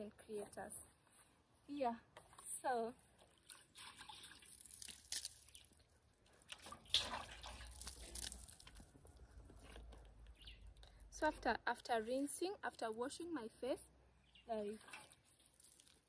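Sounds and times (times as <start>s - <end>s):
water splashing and dripping: 3.0s - 9.2s, 14.5s - 16.0s.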